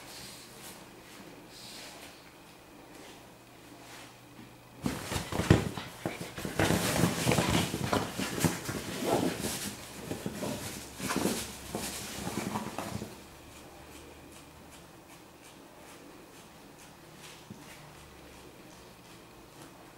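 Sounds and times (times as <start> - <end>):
fabric rustling and scraping: 4.8 - 13.2.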